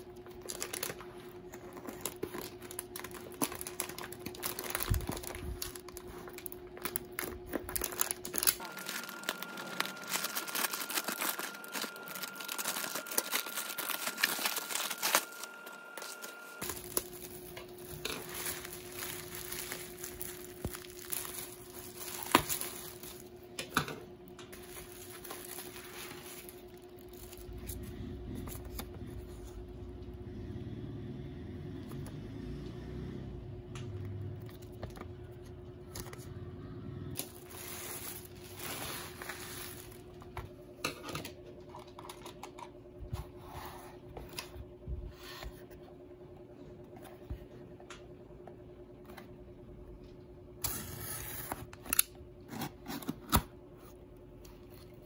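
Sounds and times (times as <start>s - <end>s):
bubble wrap crinkling: 0.0s - 23.6s, 24.5s - 27.9s, 37.2s - 40.6s
faint steady hum: 0.0s - 55.0s.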